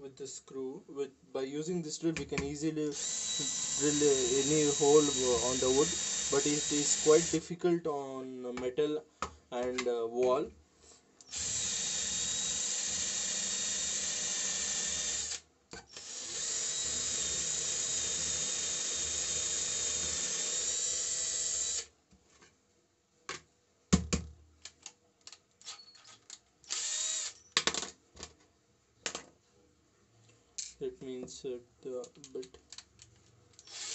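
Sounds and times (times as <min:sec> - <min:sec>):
cordless drill boring wood: 0:03.0 - 0:07.4, 0:11.2 - 0:21.9, 0:26.7 - 0:27.4, 0:33.6 - 0:33.9.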